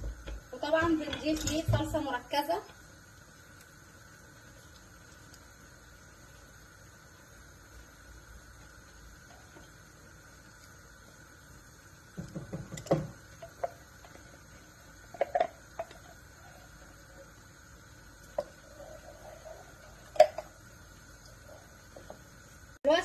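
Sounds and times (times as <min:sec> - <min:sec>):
sauce bubbling and popping: 0:02.7 - 0:22.8
wooden spatula knocking pot: 0:12.2 - 0:13.8.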